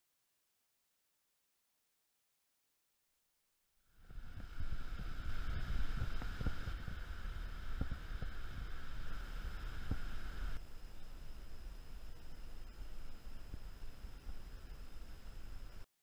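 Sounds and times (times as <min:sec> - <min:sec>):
steady hiss: 0:03.8 - 0:15.9
wind buffeting microphone: 0:04.0 - 0:10.6.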